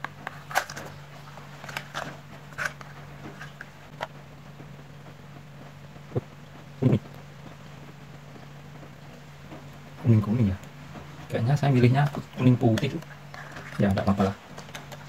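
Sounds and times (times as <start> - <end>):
clicks and rustles of handling: 0.0 - 4.2, 8.3 - 15.0
steady low hum: 0.0 - 15.0.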